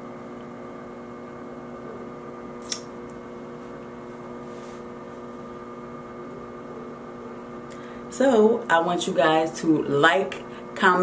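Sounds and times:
electrical hum: 0.0s - 11.0s
sharp click: 2.6s - 2.9s.

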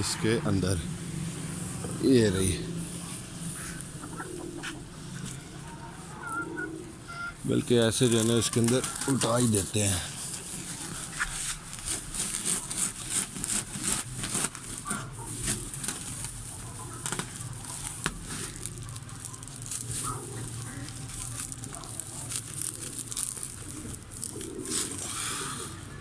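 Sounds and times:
straw crackling: 0.6s - 26.0s
plastic sack rustling: 7.7s - 25.9s.

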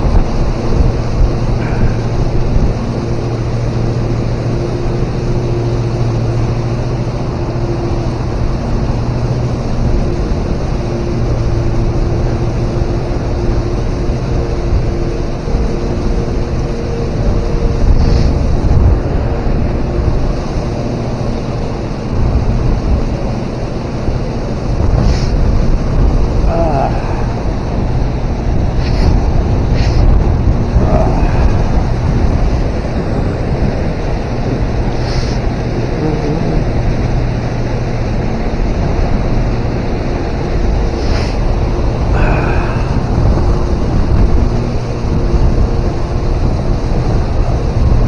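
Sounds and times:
wind buffeting microphone: 0.0s - 48.0s.

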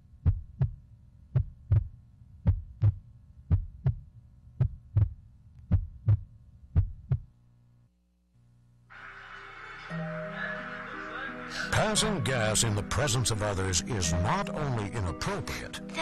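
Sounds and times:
heartbeat thumps: 0.1s - 7.3s.

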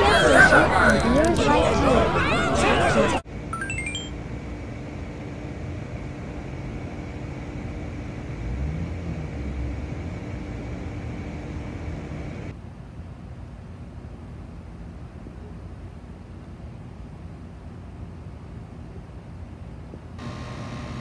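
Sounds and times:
low rumble and hiss: 3.9s - 20.3s.

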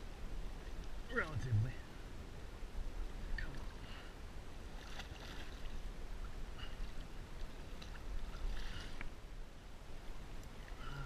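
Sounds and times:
water lapping around kayak: 0.0s - 11.0s
splashing: 4.8s - 5.8s.

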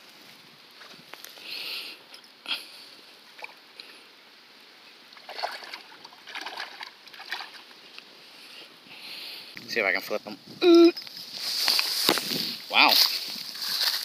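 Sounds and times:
fish splashing at the surface: 5.2s - 7.7s.

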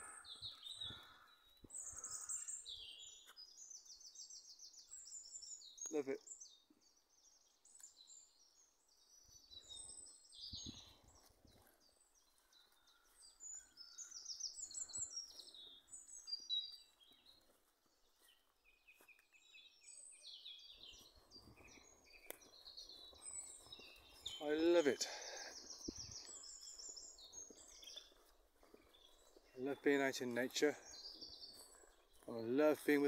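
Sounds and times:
songbirds chirping and warbling: 0.0s - 33.0s.

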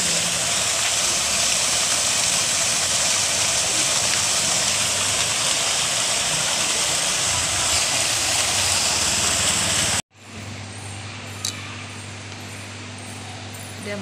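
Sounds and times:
fountain water splashing: 0.0s - 10.0s
vending machines humming: 5.9s - 14.0s.

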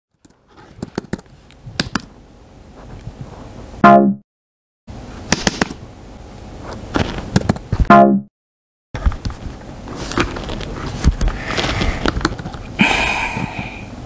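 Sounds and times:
laptop keyboard typing: 0.2s - 2.1s, 12.0s - 12.7s.

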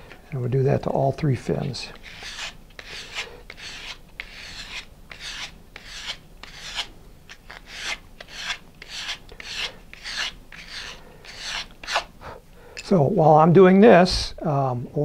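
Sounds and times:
sandpaper rasping on wood: 2.0s - 6.9s, 7.5s - 12.1s.

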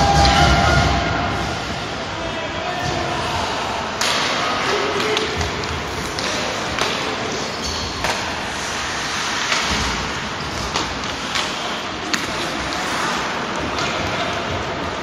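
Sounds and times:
hockey sticks and puck clacking: 3.9s - 15.0s.

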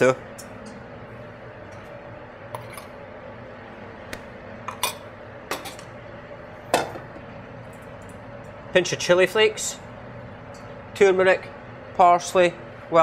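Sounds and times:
steady low hum: 0.0s - 13.0s
steel bowls and utensils clinking: 4.7s - 5.9s.

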